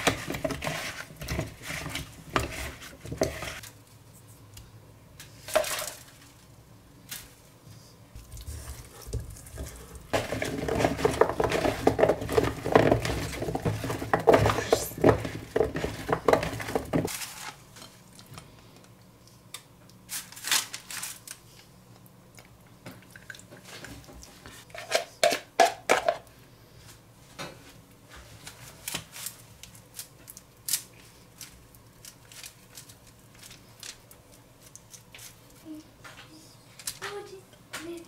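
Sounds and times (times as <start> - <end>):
food tossed in plastic bowl: 8.2 - 17.6.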